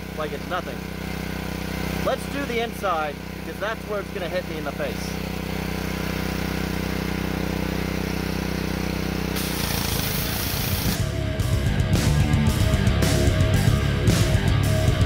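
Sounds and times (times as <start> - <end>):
pressure washer engine running: 0.0 - 15.0
loud hiss of sandblasting wand: 9.3 - 11.0
heavy rock music: 10.8 - 15.0.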